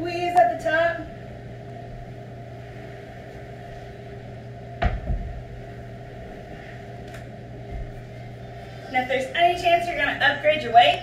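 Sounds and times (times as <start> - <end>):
low room hum: 0.0 - 11.0
kettlebell thud: 4.8 - 5.4.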